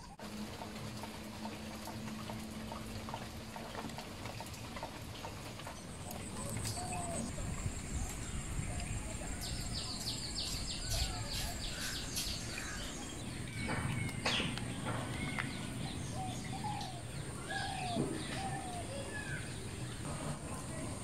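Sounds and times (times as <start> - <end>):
birds chirping: 4.7 - 21.0.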